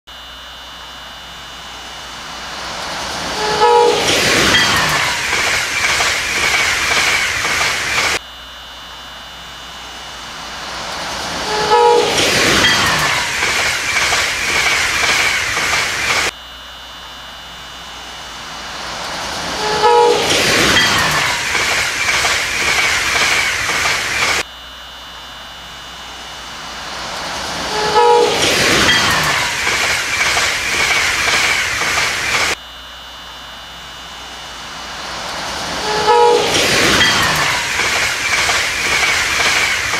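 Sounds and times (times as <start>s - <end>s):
train rumble: 1.0s - 8.2s, 9.5s - 16.3s, 17.6s - 24.5s, 25.7s - 32.6s, 34.1s - 39.9s
clattering train wheels: 1.8s - 8.2s, 10.4s - 16.3s, 18.5s - 24.5s, 26.5s - 32.6s, 34.6s - 39.9s
high squeal: 2.4s - 8.2s, 18.6s - 24.4s, 26.8s - 32.6s, 34.8s - 39.9s
train horn blast: 3.2s - 4.4s, 11.4s - 12.5s, 19.5s - 20.4s, 27.6s - 28.5s, 35.8s - 36.6s.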